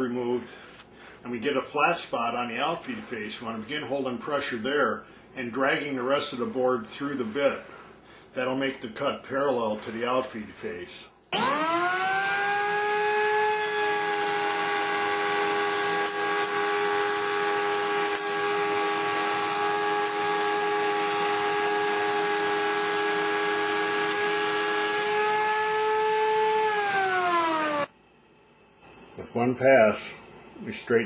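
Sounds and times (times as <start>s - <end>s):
router motor whining: 11.4s - 27.9s.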